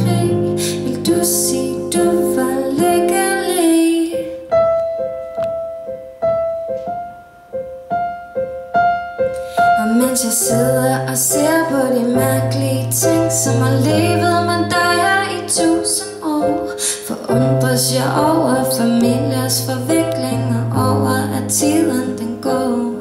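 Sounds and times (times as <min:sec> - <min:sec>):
woman singing: 0:00.0 - 0:04.5, 0:09.5 - 0:23.0
piano: 0:00.0 - 0:23.0.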